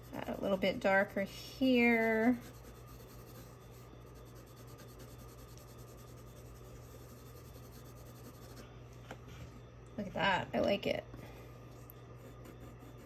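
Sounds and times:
pencil rubbing on paper: 0:02.0 - 0:08.6.

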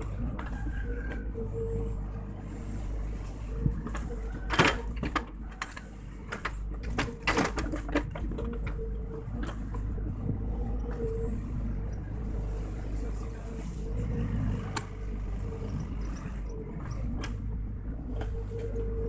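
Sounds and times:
excavator diesel engine running: 0:00.0 - 0:19.0
excavator bucket clanks and knocks: 0:03.9 - 0:09.9.

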